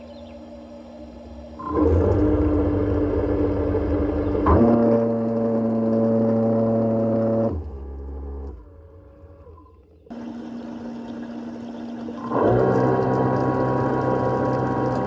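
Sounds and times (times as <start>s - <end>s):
water pump motor humming: 0.0s - 15.0s.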